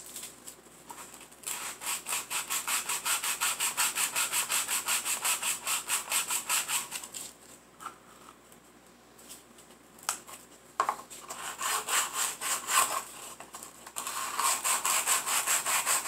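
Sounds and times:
sandpaper rubbing on wood: 1.5s - 7.0s, 11.4s - 13.0s, 14.1s - 16.0s.

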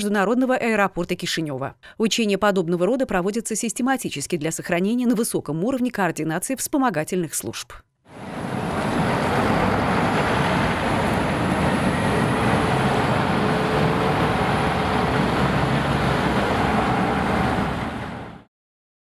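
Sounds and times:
faint engine whine: 8.1s - 18.5s
diesel engine rumble: 8.2s - 18.4s.

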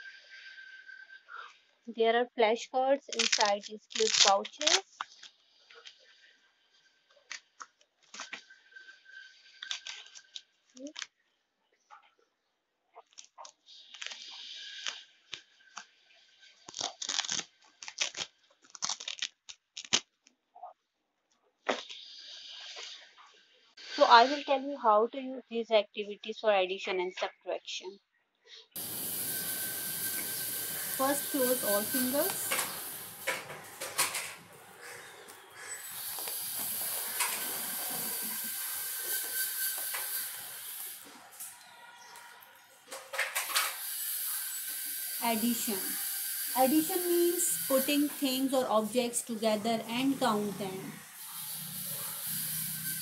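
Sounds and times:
steady hiss: 28.8s - 41.1s, 51.2s - 53.0s
pouch flap hiss: 35.8s - 40.0s.

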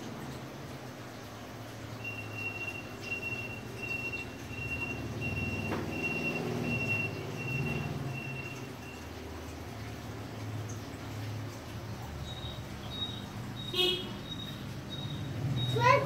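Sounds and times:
short high electronic beeps: 12.3s - 16.0s.

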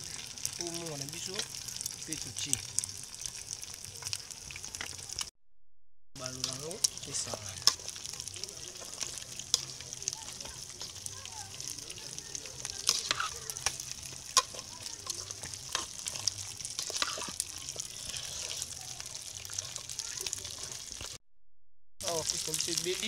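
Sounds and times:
vegetables sizzling in oil: 0.0s - 5.3s, 6.2s - 21.2s, 22.0s - 23.0s
metal spoon scraping a pot: 12.8s - 18.8s.

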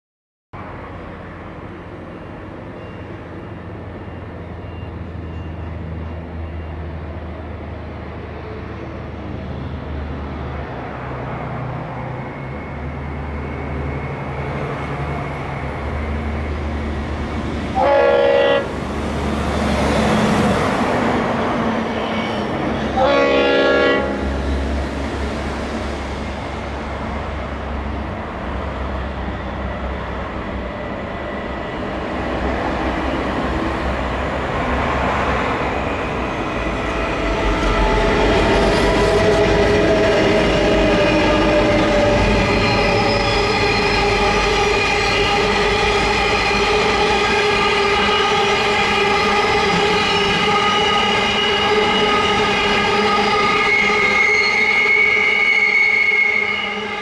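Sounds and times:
diesel locomotive rumble: 0.6s - 55.4s
locomotive air horn blasts: 17.8s - 18.8s, 22.9s - 24.4s, 43.7s - 57.0s.

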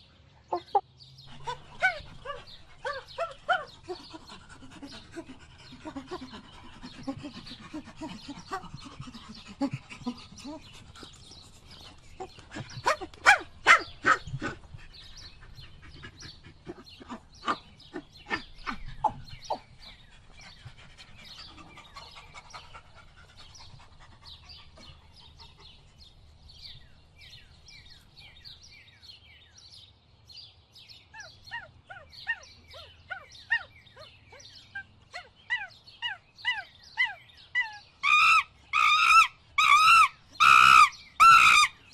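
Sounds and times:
birds chirping: 0.0s - 41.9s
loud sharp animal calls: 38.0s - 41.8s.

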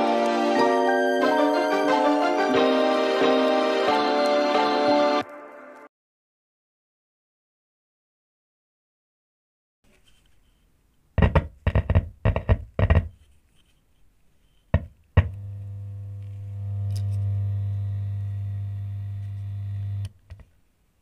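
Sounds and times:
buzzing pops from speaker: 15.2s - 20.2s
low hum from speaker: 15.2s - 20.2s.

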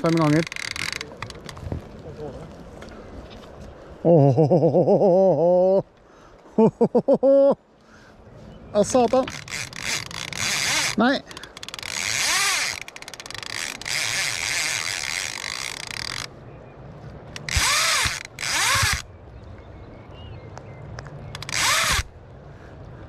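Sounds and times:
fishing reel drag buzzing: 0.1s - 1.0s, 9.3s - 11.0s, 11.6s - 16.3s, 17.4s - 19.0s, 21.4s - 22.1s.

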